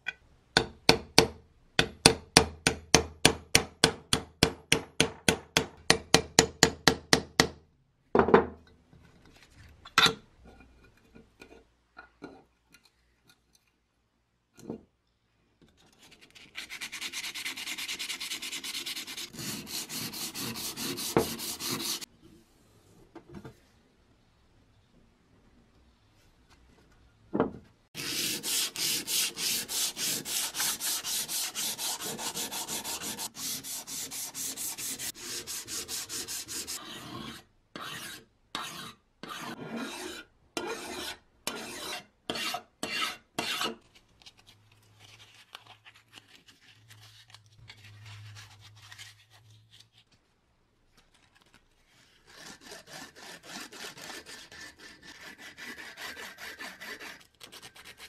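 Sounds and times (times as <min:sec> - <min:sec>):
sanding metal by hand: 0:16.8 - 0:22.1, 0:28.0 - 0:43.8.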